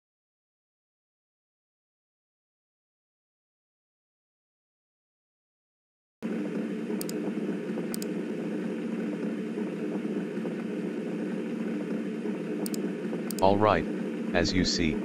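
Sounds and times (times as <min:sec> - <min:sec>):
faint clicks: 0:07.9 - 0:08.1.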